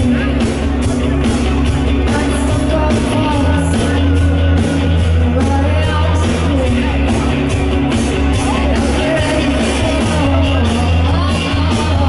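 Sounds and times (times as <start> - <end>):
bass guitar: 0.0 - 12.0
drums with cymbal beat: 0.0 - 12.0
electric guitars: 0.0 - 12.0
woman singing: 2.0 - 4.4, 5.1 - 7.3, 8.6 - 12.0.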